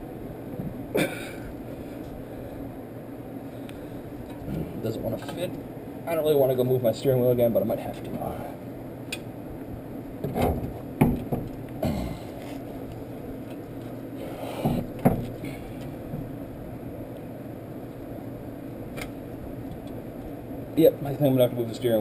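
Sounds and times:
steady low hum: 0:00.0 - 0:22.0
metal clunks and knocks: 0:10.2 - 0:11.6, 0:14.6 - 0:15.4.

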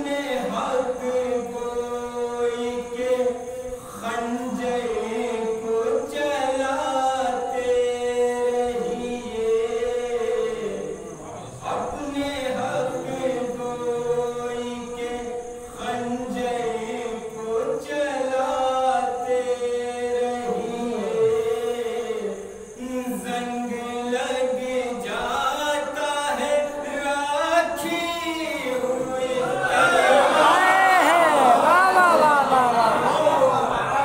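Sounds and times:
man singing into a microphone: 0:00.0 - 0:29.5.

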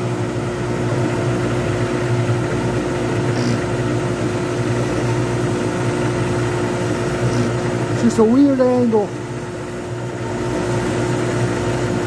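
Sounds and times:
lathe motor humming: 0:00.0 - 0:12.0
turning tool cutting wood: 0:04.6 - 0:09.0.

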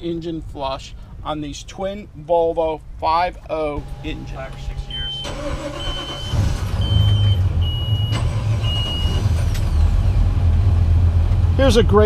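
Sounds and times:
heavy engine rumbling: 0:03.6 - 0:12.0
short high-pitched beeps: 0:04.0 - 0:09.2.

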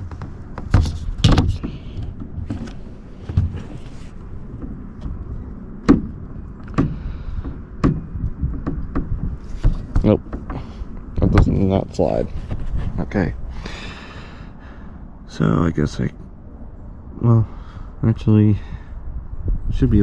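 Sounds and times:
knocks and clunks on car part: 0:05.8 - 0:10.7.

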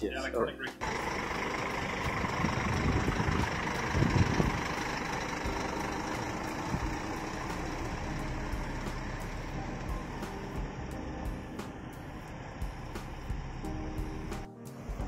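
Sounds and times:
truck diesel engine pulling away: 0:00.8 - 0:15.0.

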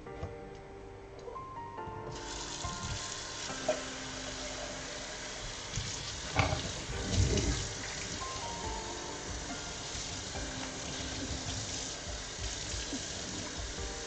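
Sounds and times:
faucet water splashing in sink: 0:02.2 - 0:13.9
pot knocking against sink: 0:06.3 - 0:07.7.

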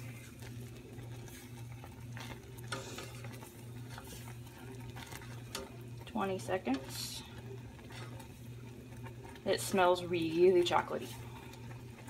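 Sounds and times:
mixture bubbling and sizzling: 0:00.0 - 0:12.0
steady low hum: 0:00.0 - 0:12.0
wooden spoon scraping a pot: 0:00.0 - 0:12.0.

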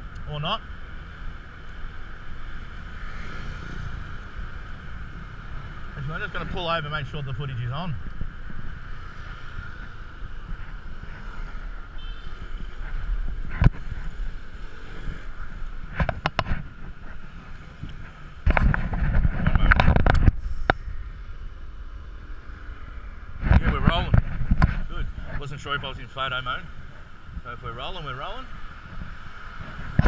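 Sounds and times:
camera case rubbing and knocking: 0:09.2 - 0:14.4, 0:15.0 - 0:20.8, 0:23.4 - 0:25.0.

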